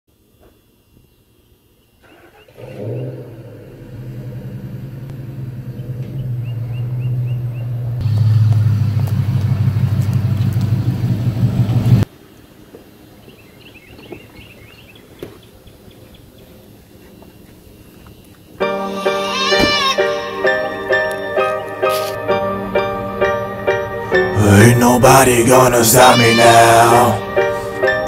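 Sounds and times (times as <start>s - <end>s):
vehicle engine running: 2.4s - 12.1s
birds chirping: 5.5s - 8.0s, 12.9s - 20.1s.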